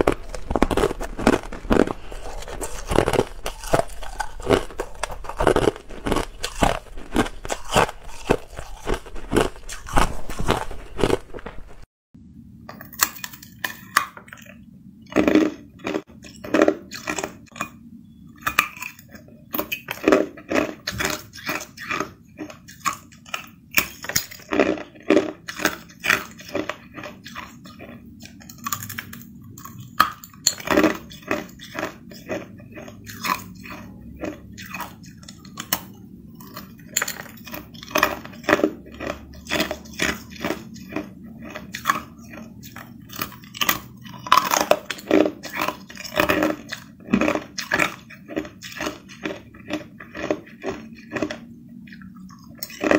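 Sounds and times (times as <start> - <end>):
ice crunching in mouth: 0.0 - 11.9, 18.4 - 52.9
steady low hum: 0.0 - 13.4.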